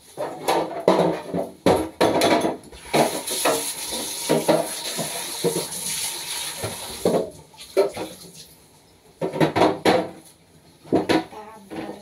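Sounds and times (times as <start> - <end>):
food containers knocking and clattering: 0.0 - 5.8, 6.6 - 8.3, 9.2 - 12.0.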